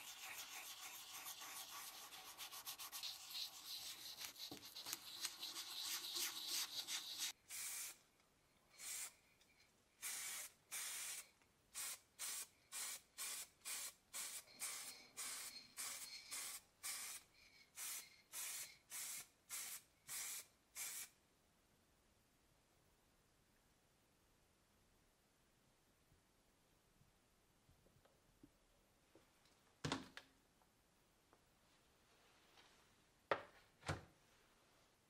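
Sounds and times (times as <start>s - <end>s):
hand sanding metal: 0.0s - 7.3s
spray paint hissing: 2.7s - 8.0s, 8.8s - 9.2s, 10.0s - 21.1s.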